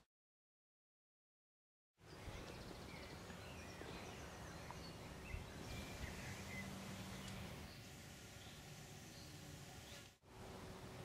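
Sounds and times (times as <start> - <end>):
bird chirps: 2.0 - 10.1.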